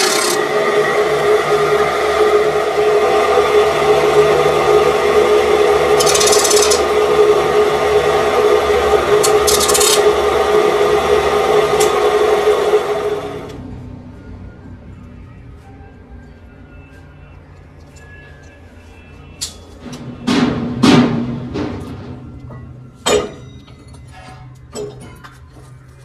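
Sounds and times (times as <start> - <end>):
tool scraping turning steel: 0.0 - 0.6, 5.9 - 7.0, 9.1 - 10.2
metal lathe humming: 0.0 - 13.6.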